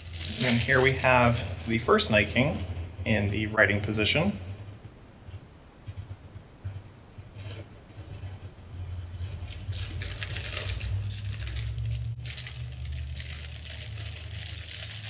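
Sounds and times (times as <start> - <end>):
plastic wrapping rustling: 0.0 - 2.7, 7.3 - 15.0
steady low hum: 0.0 - 15.0.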